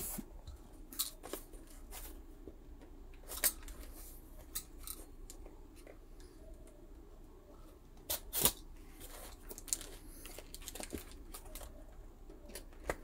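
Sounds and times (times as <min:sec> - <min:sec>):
plastic pack clicks and crinkles: 0:08.1 - 0:11.7.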